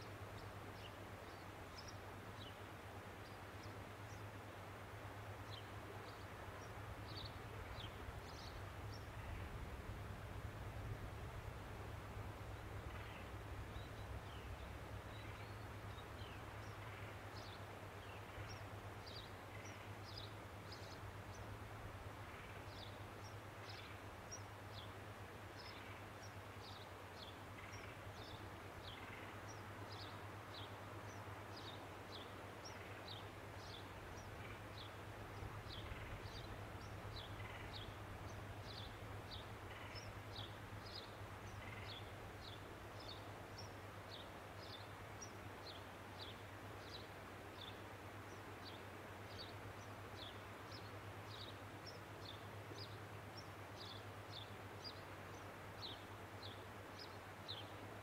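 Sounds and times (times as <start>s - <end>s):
constant low hum: 0.0s - 55.6s
steady hiss: 0.0s - 58.0s
small birds chirping: 25.6s - 57.8s.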